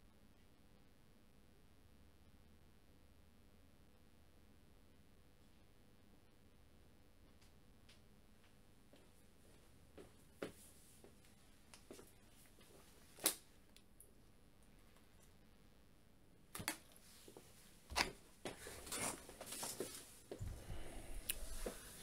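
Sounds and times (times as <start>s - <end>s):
person handling things: 16.6s - 20.6s.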